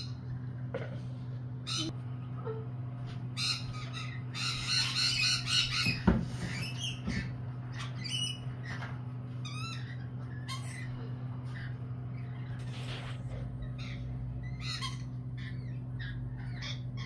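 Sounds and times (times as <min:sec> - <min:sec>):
steady low hum: 0:00.0 - 0:17.0
lorikeets screeching: 0:01.6 - 0:02.0, 0:03.3 - 0:17.0
rapid bird chattering: 0:03.4 - 0:08.7.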